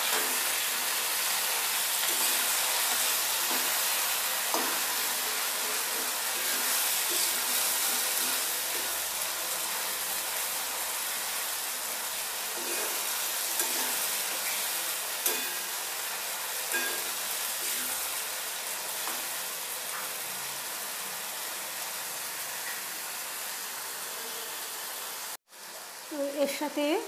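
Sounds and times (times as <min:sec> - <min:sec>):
spatula scraping a pan: 0:00.0 - 0:09.2, 0:12.5 - 0:15.8, 0:16.7 - 0:18.2
paste sizzling in hot oil: 0:00.0 - 0:27.0.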